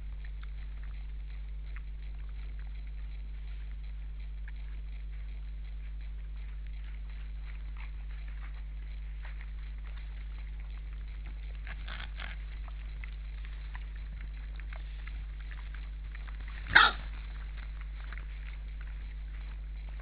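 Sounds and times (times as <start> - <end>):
steady low hum: 0.0 - 20.0
sharp animal bark: 16.7 - 17.1.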